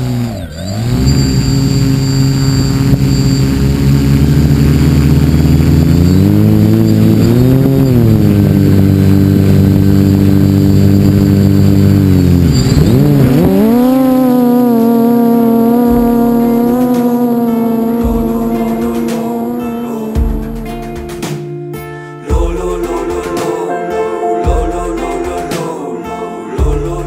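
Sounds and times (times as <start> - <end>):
drone motors and propellers whining: 0.0 - 21.0.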